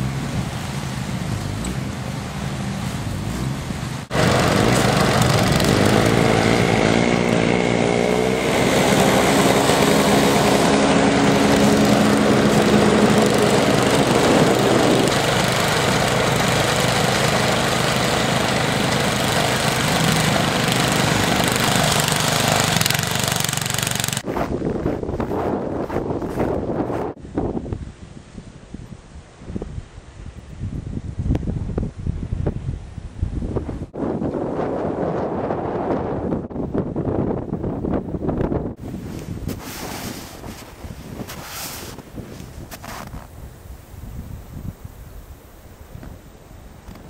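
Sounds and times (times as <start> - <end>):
engine running: 0.0 - 24.5.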